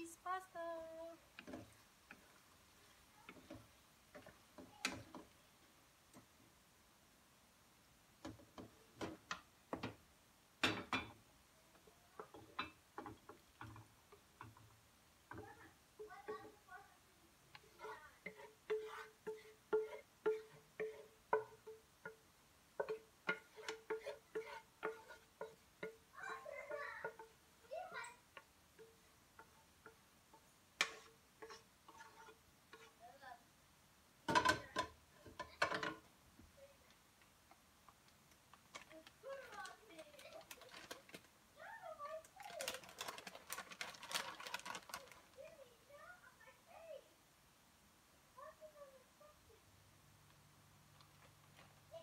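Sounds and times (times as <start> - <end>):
wooden spatula tapping a pan: 1.3 - 2.4, 3.3 - 5.4, 8.2 - 10.0, 10.6 - 16.7, 17.5 - 33.0, 34.3 - 36.5.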